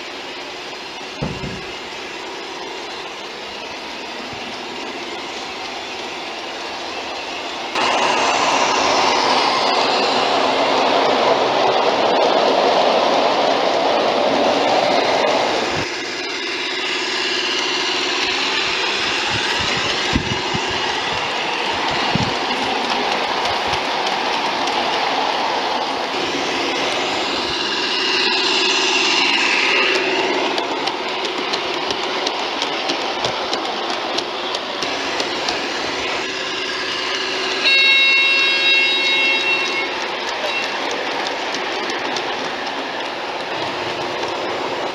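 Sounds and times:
diesel engine sound running: 0:00.0 - 0:12.0, 0:14.6 - 0:44.9
loud high steady tone: 0:00.0 - 0:12.2, 0:14.6 - 0:31.2, 0:34.9 - 0:40.9
model train rumbling on track: 0:00.0 - 0:44.9
wheels clicking on track: 0:00.0 - 0:44.9.

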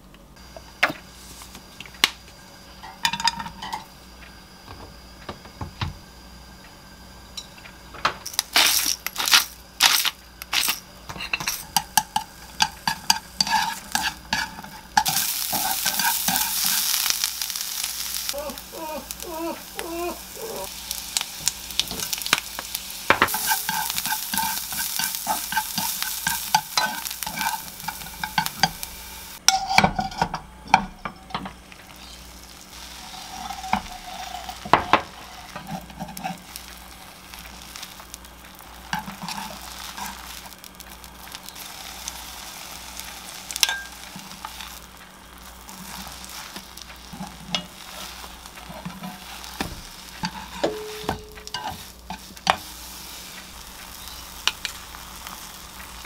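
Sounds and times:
vegetables sizzling in oil: 0:00.4 - 0:56.0
wooden utensil scraping a pan: 0:12.6 - 0:17.0, 0:23.2 - 0:28.8, 0:32.8 - 0:37.4, 0:38.8 - 0:40.5, 0:45.7 - 0:52.8.

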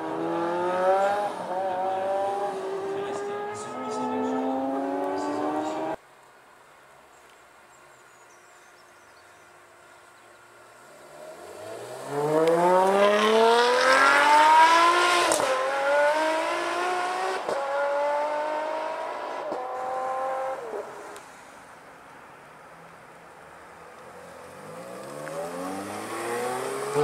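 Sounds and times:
sports car engine accelerating hard: 0:00.0 - 0:06.0, 0:11.0 - 0:21.2, 0:24.2 - 0:27.0.

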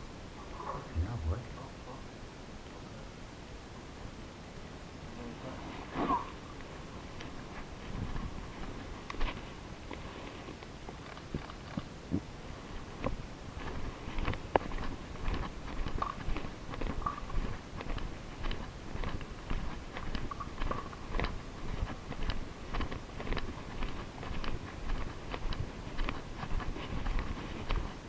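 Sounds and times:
footsteps crunching on grit: 0:07.2 - 0:10.6, 0:12.7 - 0:28.0.

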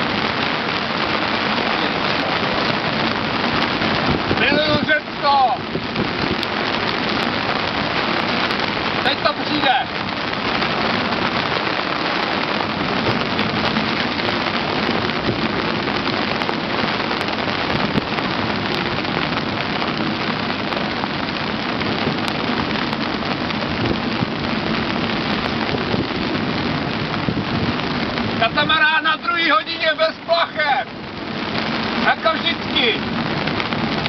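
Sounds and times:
heavy rain on boat deck: 0:00.0 - 0:34.0.

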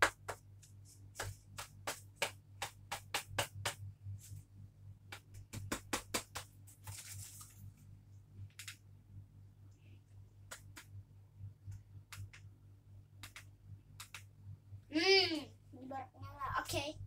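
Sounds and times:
steady low hum: 0:00.0 - 0:17.0
faint clicks and taps: 0:11.6 - 0:12.5.

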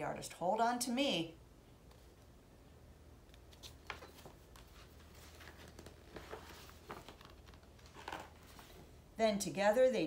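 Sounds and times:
low steady hum: 0:00.0 - 0:10.0
book pages rustling: 0:03.3 - 0:08.9.

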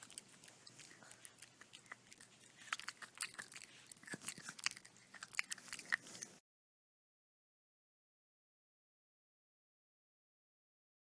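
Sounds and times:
puppy gnawing and chewing: 0:00.0 - 0:06.4.

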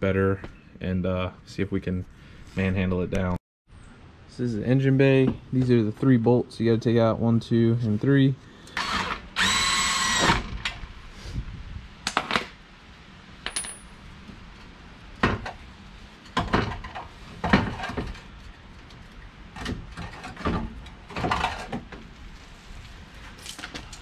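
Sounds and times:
metal tools clinking and knocking: 0:13.4 - 0:14.0.

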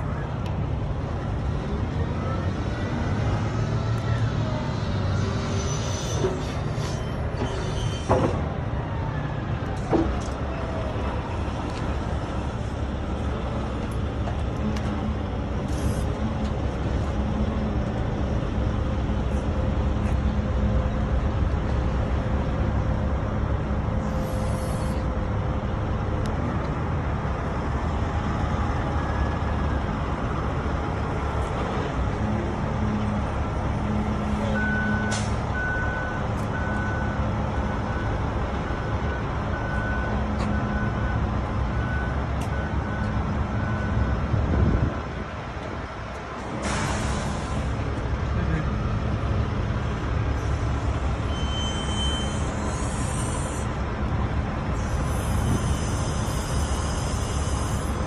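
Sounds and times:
heavy vehicle engine running: 0:00.0 - 0:58.0
reversing alarm beeping: 0:34.5 - 0:44.3, 0:51.2 - 0:53.6.

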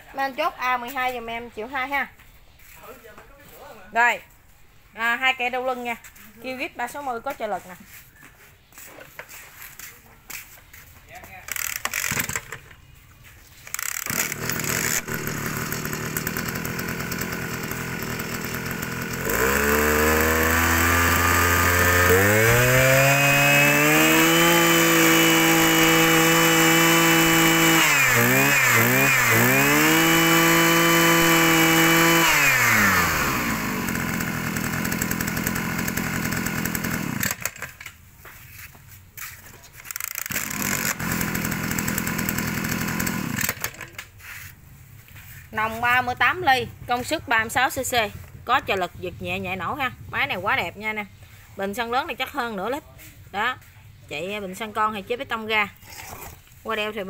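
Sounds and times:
brush cutter engine revving: 0:11.4 - 0:12.7, 0:13.5 - 0:37.9, 0:39.8 - 0:44.5.

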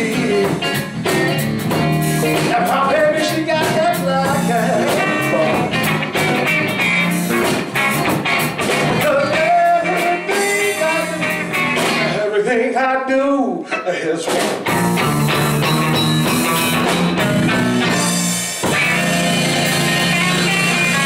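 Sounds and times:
man singing: 0:00.0 - 0:00.9, 0:02.2 - 0:05.9, 0:09.0 - 0:14.5, 0:19.8 - 0:21.0
electric guitar: 0:00.0 - 0:12.4, 0:13.4 - 0:21.0
drum hits: 0:14.3 - 0:21.0.

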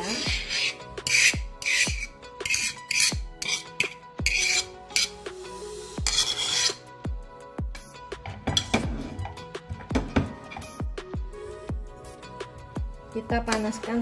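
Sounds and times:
potato masher scraping: 0:00.0 - 0:05.2, 0:06.0 - 0:06.9
background music with steady beat: 0:00.0 - 0:14.0.

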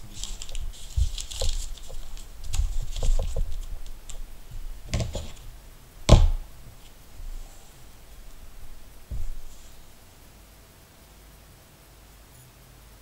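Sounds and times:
sharp knock: 0:06.1 - 0:06.5.

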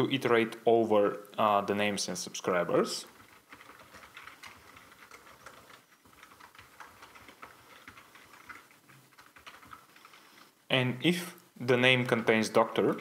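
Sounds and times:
typing on a computer keyboard: 0:03.1 - 0:10.3.

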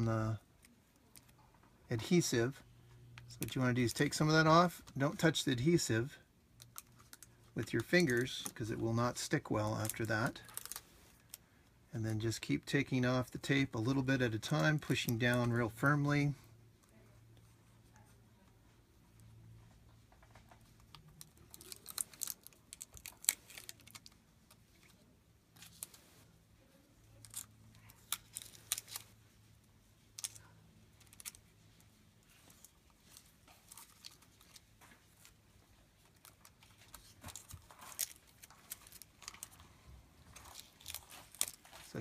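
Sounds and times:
plastic film tearing and crinkling: 0:09.8 - 0:11.3, 0:21.0 - 0:24.2, 0:27.1 - 0:29.2, 0:36.0 - 0:39.6, 0:40.2 - 0:42.0.

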